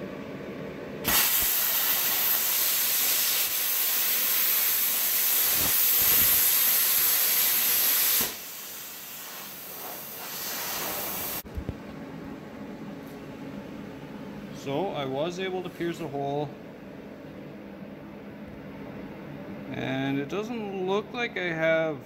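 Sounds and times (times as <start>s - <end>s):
air hissing: 1.0s - 11.4s
plasma cutter arc hissing: 1.0s - 11.4s.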